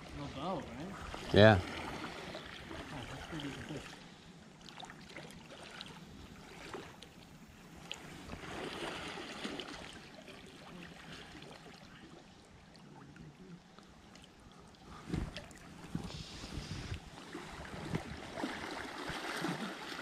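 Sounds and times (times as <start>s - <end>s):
river water running: 0.0s - 20.0s
small water splashes: 0.0s - 20.0s.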